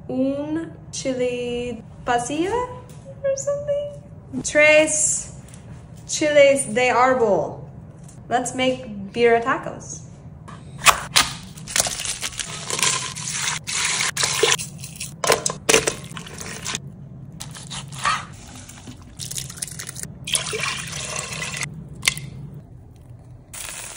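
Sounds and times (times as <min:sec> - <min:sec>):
low steady hum: 0:00.0 - 0:23.9
broth pouring into metal pot: 0:19.3 - 0:21.7.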